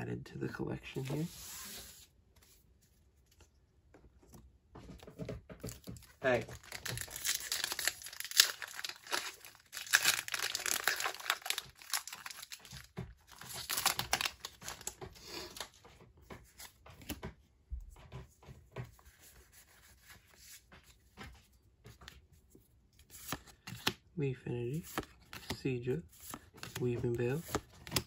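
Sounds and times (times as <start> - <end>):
foil wrapper tearing and crinkling: 6.3 - 15.0.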